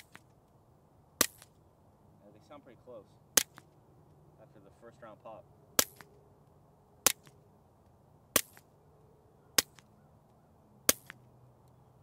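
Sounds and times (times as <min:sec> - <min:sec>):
suppressed pistol shots: 0:05.8 - 0:06.2.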